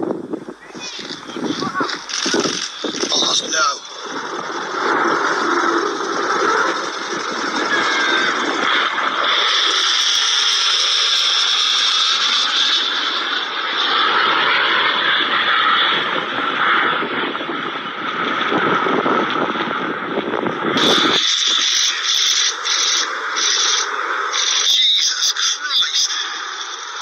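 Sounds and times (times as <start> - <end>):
choppy noise: 0.0 - 27.0
jet roaring past: 0.0 - 27.0.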